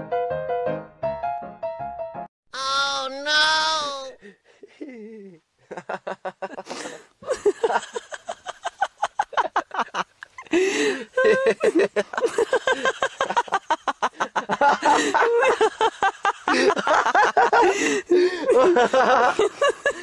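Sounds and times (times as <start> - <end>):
young man laughing: 4.5 - 20.0.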